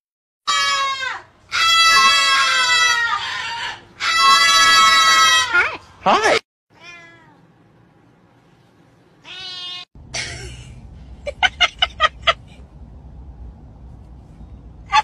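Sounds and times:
cat meowing: 0.5s - 5.6s, 6.7s - 7.4s, 9.2s - 9.9s
car hum: 10.0s - 15.0s
person laughing: 10.1s - 12.7s.

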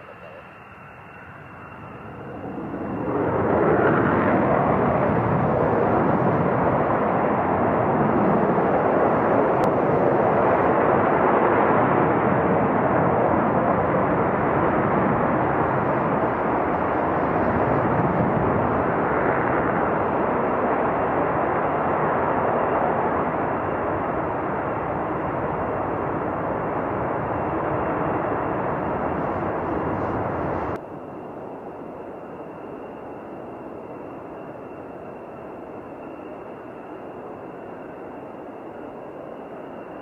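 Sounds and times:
fighter jet taking off: 0.0s - 30.8s.

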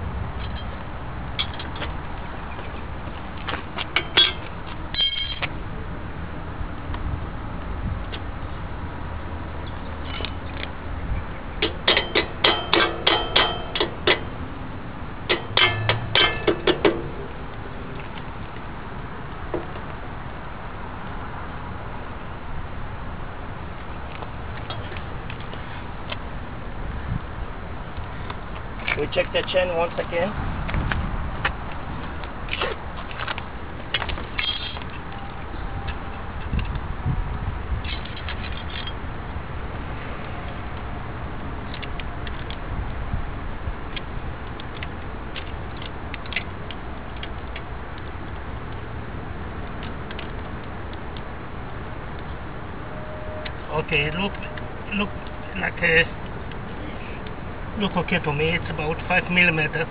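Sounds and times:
hammer tapping metal: 11.6s - 14.3s, 15.3s - 17.2s.

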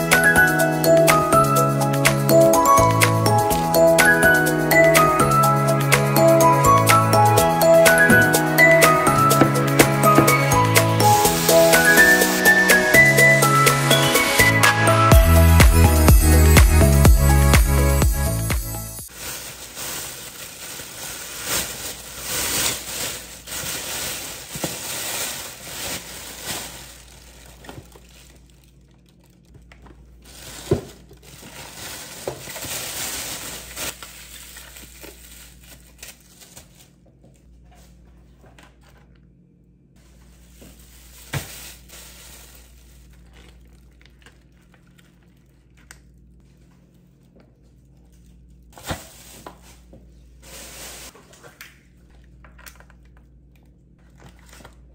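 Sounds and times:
plastic bag crinkling: 19.0s - 37.0s, 40.0s - 51.2s
packages set down on countertop: 29.7s - 32.8s, 40.5s - 42.1s.

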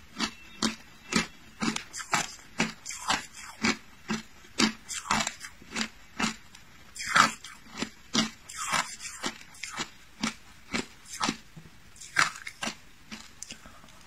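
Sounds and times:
crunching ice between teeth: 0.1s - 13.6s.

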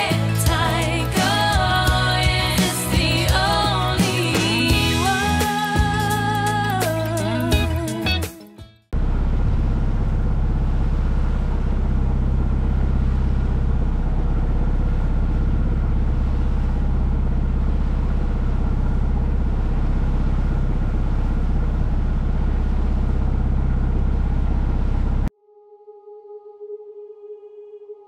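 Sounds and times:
boat engine running low: 9.0s - 25.3s.

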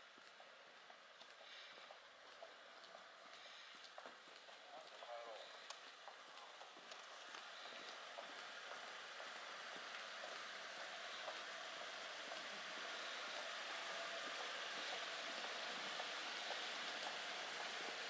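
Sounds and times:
hiss of slow-moving cars: 0.0s - 18.0s
footsteps on paving: 0.2s - 13.4s.

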